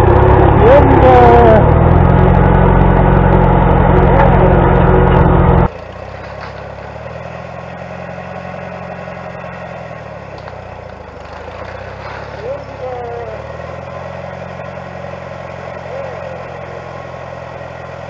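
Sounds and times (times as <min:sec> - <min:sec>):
tractor engine running: 0:00.0 - 0:18.0.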